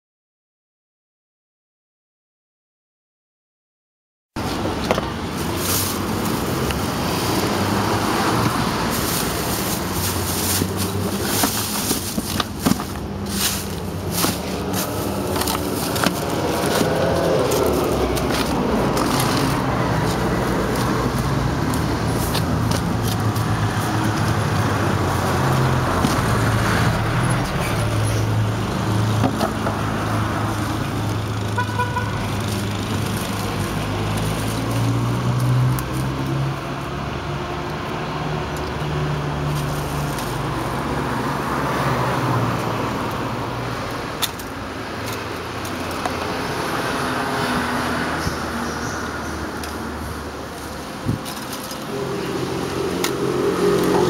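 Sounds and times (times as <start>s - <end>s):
street traffic noise: 4.4s - 54.0s
vehicle engine humming: 4.4s - 54.0s
plastic bags rustling: 5.3s - 26.5s.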